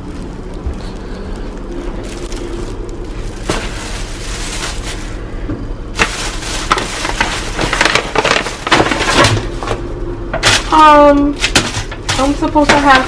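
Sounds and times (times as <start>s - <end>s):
paper bag handled: 0.0s - 9.8s, 10.4s - 13.0s
plastic bag crinkling: 0.0s - 13.0s
foam container handled: 2.1s - 5.2s, 6.0s - 9.8s.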